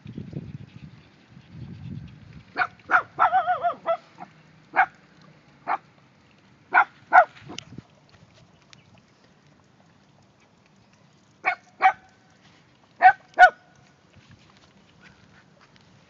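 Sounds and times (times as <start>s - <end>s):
dog yapping: 2.6s - 4.0s, 6.7s - 7.3s
dog yelping: 2.6s - 4.0s.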